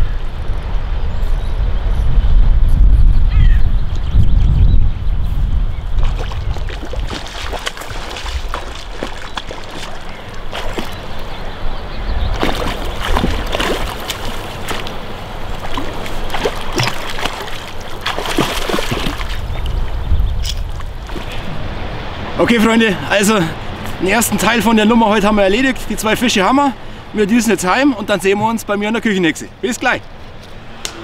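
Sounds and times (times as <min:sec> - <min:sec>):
fish splashing at water surface: 0:06.0 - 0:11.4, 0:12.3 - 0:19.8.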